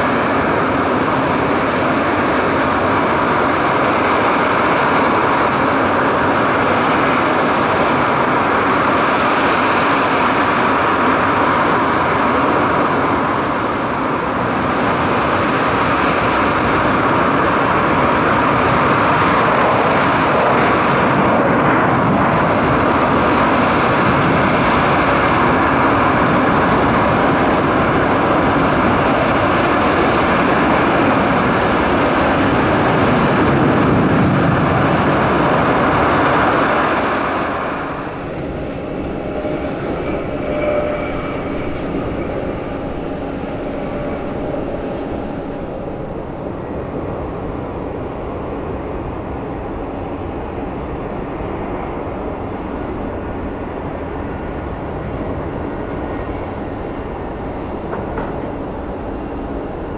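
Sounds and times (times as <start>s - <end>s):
jet engines at takeoff: 0.0s - 59.9s.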